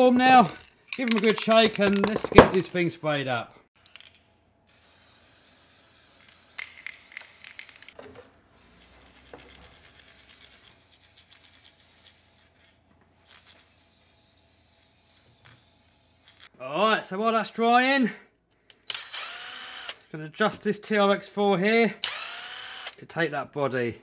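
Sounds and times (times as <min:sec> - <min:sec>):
aerosol spray can hissing: 0:04.7 - 0:08.0, 0:08.6 - 0:16.5.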